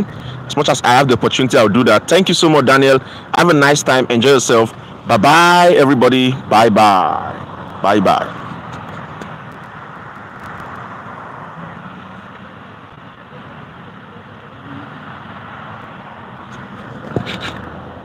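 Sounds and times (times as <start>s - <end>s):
road traffic hum: 0.0s - 18.0s.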